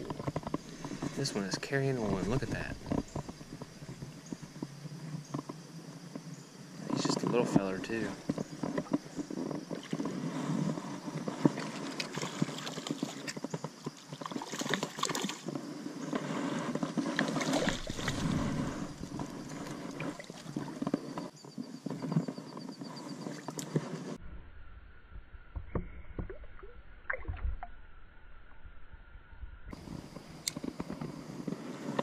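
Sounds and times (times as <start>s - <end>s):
water splashing: 11.2s - 13.4s, 14.0s - 15.5s, 17.0s - 20.9s.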